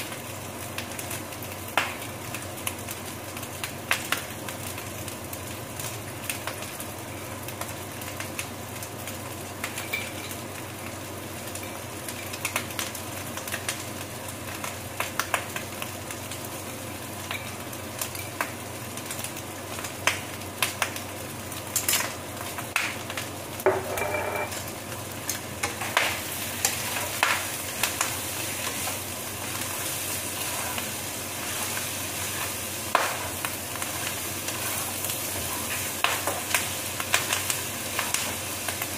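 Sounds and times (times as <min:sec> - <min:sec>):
pork sizzling in a pan: 0:00.0 - 0:38.9
wooden spatula stirring: 0:26.6 - 0:36.5.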